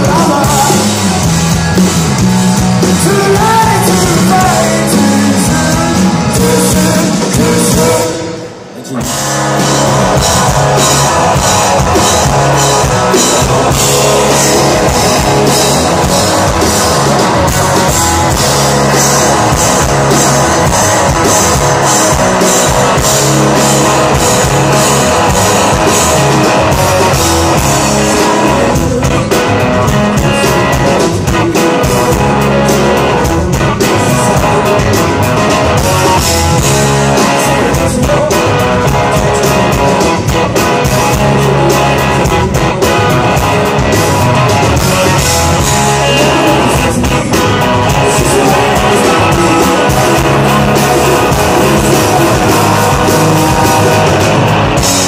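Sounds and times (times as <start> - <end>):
bass guitar: 0.0 - 55.0
drum kit: 0.0 - 55.0
electric guitar: 0.0 - 55.0.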